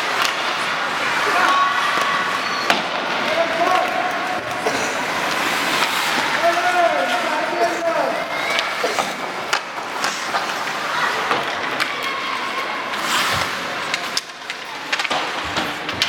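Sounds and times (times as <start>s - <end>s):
hockey sticks and puck clacking: 0.0s - 16.0s
skates hissing on ice: 4.6s - 6.5s, 8.8s - 11.3s, 12.9s - 14.2s.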